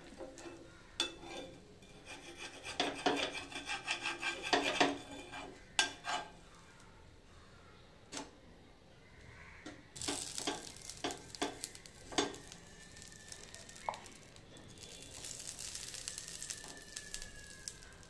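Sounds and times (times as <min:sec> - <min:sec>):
scraping on griddle: 0:00.0 - 0:06.8, 0:10.0 - 0:18.0
hot griddle sizzling: 0:10.0 - 0:18.0.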